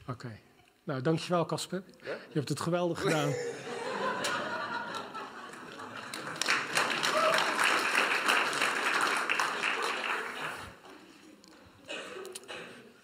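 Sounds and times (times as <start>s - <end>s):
congregation applauding: 4.2s - 10.9s.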